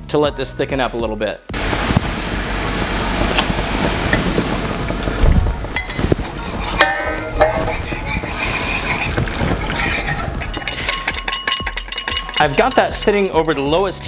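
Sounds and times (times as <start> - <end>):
whisk clinking against pan: 5.8 - 14.0
syrup bubbling in saucepan: 6.0 - 12.6.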